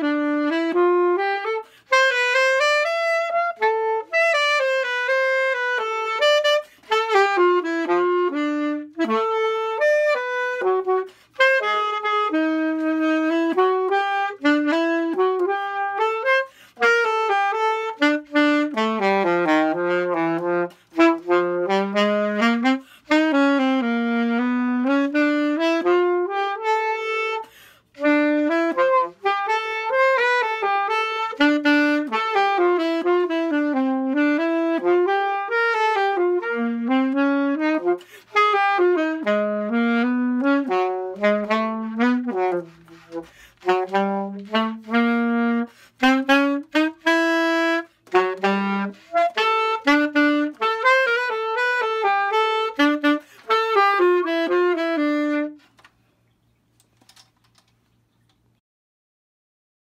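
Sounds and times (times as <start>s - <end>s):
alto saxophone melody: 0.0s - 56.0s
player breathing: 43.2s - 43.6s.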